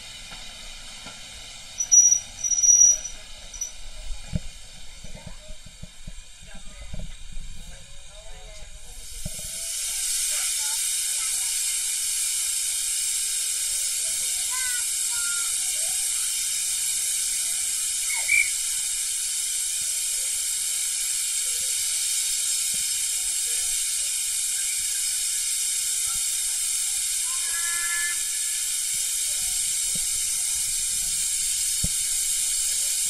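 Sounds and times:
steam hissing: 0:00.0 - 0:33.0
high squeaks: 0:01.8 - 0:03.8.

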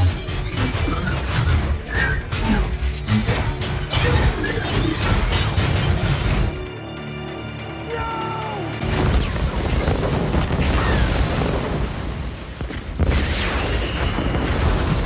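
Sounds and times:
film score: 0:00.0 - 0:15.0
man shouting: 0:07.8 - 0:08.8
heavy explosion rumbling: 0:08.9 - 0:15.0.

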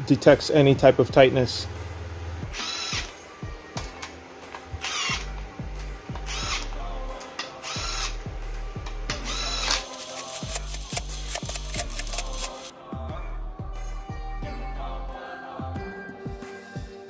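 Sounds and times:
background music with steady beat: 0:00.0 - 0:17.0
cordless power tool bursts: 0:02.5 - 0:03.1, 0:04.8 - 0:05.3, 0:06.3 - 0:06.7.

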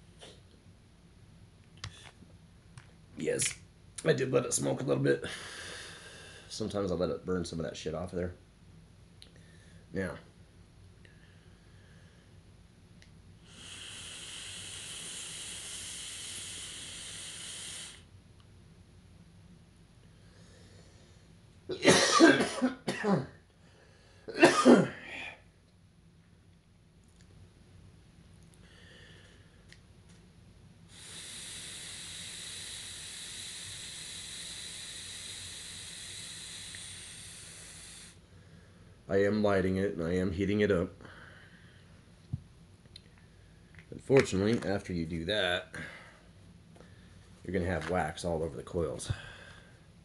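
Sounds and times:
steady air hiss: 0:03.2 - 0:08.4, 0:11.0 - 0:18.2, 0:28.6 - 0:42.4, 0:43.0 - 0:50.0
breath hissing through pen: 0:13.4 - 0:18.1, 0:30.9 - 0:38.9.

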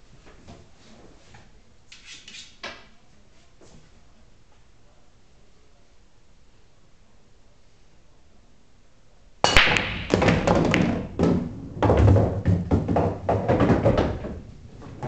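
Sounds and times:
balls thudding on cushions: 0:09.5 - 0:15.0
cue ball cracking into racked balls: 0:09.5 - 0:15.0
pool balls clicking: 0:09.5 - 0:15.0.

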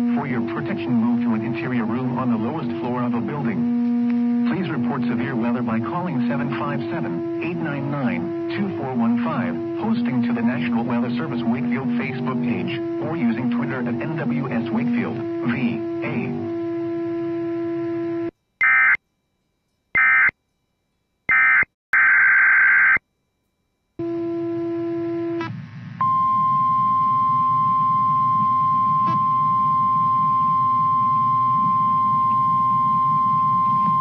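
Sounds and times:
buzzy digital data tones: 0:00.0 - 0:19.0
low hum: 0:00.0 - 0:21.3, 0:23.1 - 0:34.0
steady warning alarm tone: 0:00.0 - 0:23.0, 0:24.0 - 0:25.4, 0:26.0 - 0:34.0.

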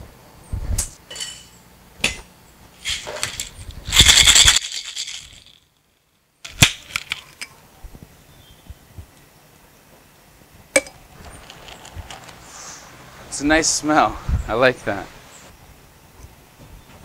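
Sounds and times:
ice rattling in cocktail shaker: 0:02.8 - 0:05.6, 0:06.5 - 0:07.5, 0:11.2 - 0:12.5.

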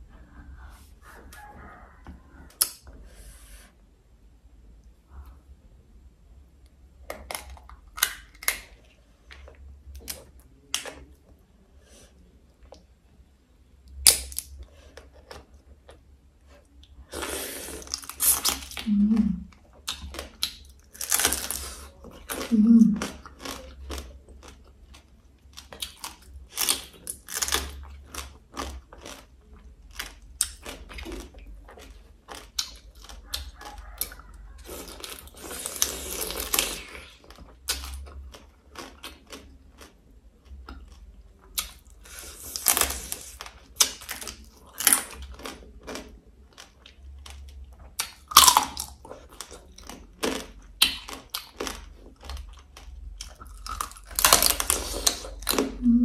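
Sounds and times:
crab shells cracking and crunching: 0:07.1 - 0:11.1, 0:14.0 - 0:14.6, 0:19.9 - 0:22.4, 0:23.0 - 0:34.0, 0:34.9 - 0:55.7
chewing: 0:14.6 - 0:56.0.

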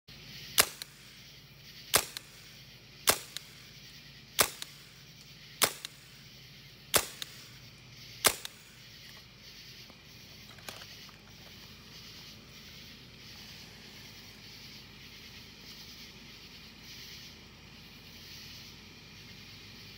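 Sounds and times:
airsoft rifle shots: 0:00.5 - 0:01.3, 0:01.9 - 0:06.3, 0:06.9 - 0:07.6, 0:08.2 - 0:08.9.

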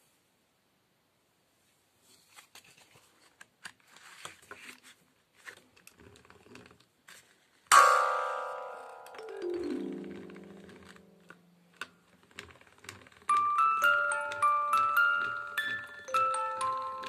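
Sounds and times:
music box note ringing: 0:07.7 - 0:11.6, 0:13.3 - 0:17.0
music box crank turning: 0:09.0 - 0:17.0.

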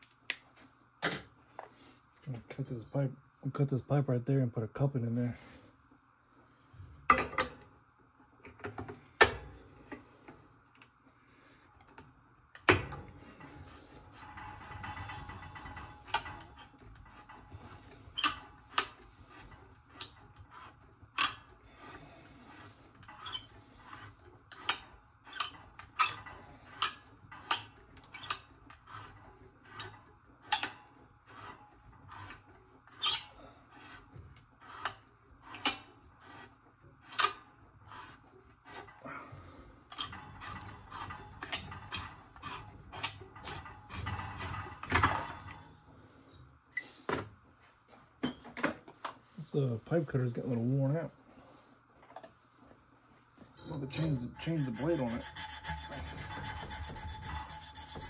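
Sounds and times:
pipe cutter scraping copper pipe: 0:13.1 - 0:39.0, 0:39.9 - 0:45.2, 0:53.5 - 0:58.0.

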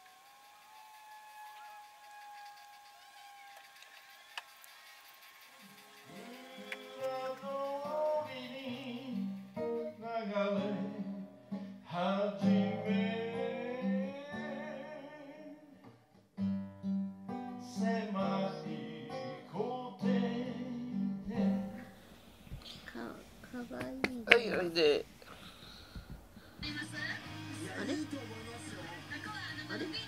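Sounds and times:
acoustic guitar: 0:05.6 - 0:30.0
person singing folk song: 0:06.0 - 0:16.0, 0:17.3 - 0:24.6.

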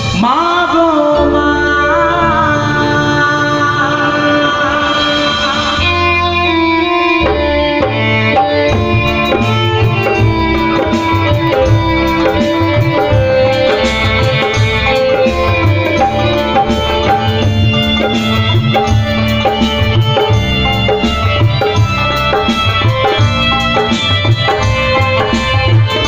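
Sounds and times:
electronic keyboard melody: 0:01.0 - 0:26.0
hand drum rhythm: 0:07.2 - 0:26.0.

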